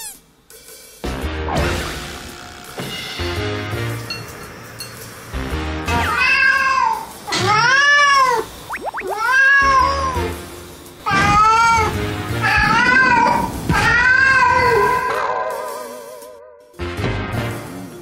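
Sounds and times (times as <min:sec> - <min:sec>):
cat yowling: 0:05.9 - 0:10.3, 0:11.1 - 0:15.9.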